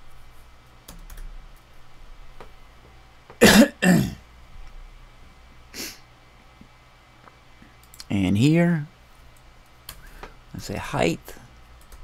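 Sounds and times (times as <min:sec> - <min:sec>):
person coughing: 0:03.4 - 0:04.2
faint keyboard clicks: 0:06.6 - 0:08.1.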